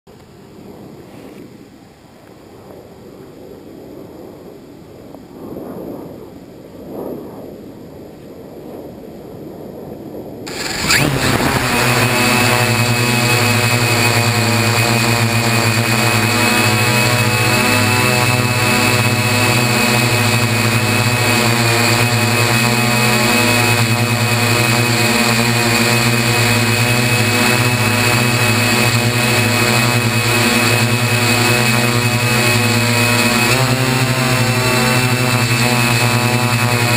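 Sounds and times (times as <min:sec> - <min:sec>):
unsteady low noise: 0:00.1 - 0:36.9
drone motors buzzing: 0:10.5 - 0:36.9
high whine: 0:10.5 - 0:36.9.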